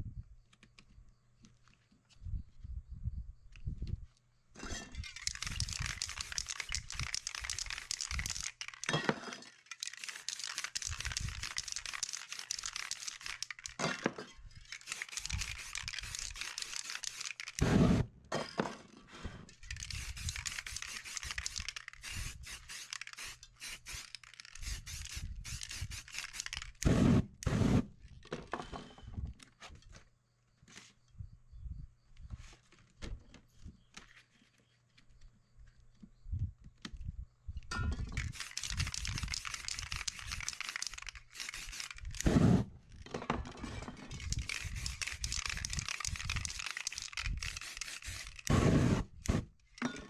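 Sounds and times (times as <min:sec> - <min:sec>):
spray paint can hissing: 0:05.0 - 0:08.9, 0:09.6 - 0:13.8, 0:14.7 - 0:18.0, 0:19.6 - 0:27.8, 0:38.2 - 0:42.4, 0:44.1 - 0:49.5.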